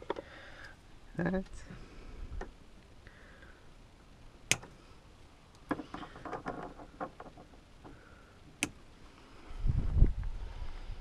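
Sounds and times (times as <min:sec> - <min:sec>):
pliers and wiring parts clicking: 0:04.5 - 0:04.8, 0:08.5 - 0:08.8.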